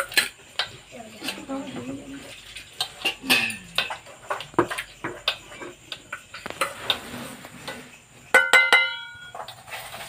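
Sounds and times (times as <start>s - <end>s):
steel bowls clinking: 0.0s - 7.0s, 7.9s - 10.0s.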